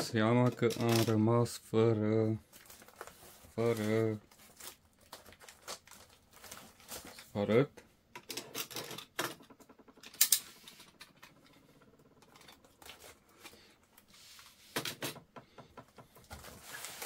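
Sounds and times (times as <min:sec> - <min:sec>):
tape crackling and ripping: 0:02.6 - 0:07.3.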